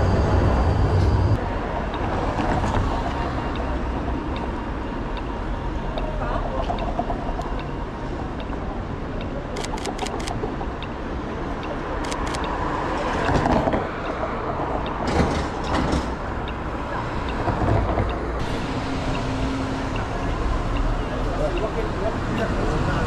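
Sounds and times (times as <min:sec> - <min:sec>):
cars passing: 0:00.0 - 0:23.0
steady traffic noise: 0:00.0 - 0:23.0
camera shutter clicks: 0:09.6 - 0:10.4, 0:12.0 - 0:12.4.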